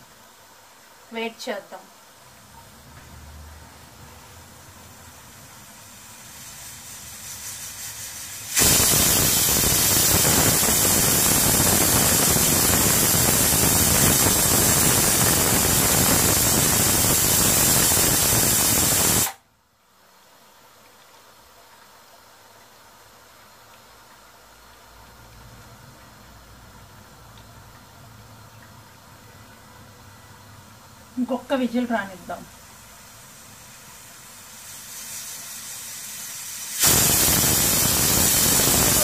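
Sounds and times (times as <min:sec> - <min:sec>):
pressure cooker whistling: 0:08.5 - 0:19.4, 0:36.4 - 0:39.0.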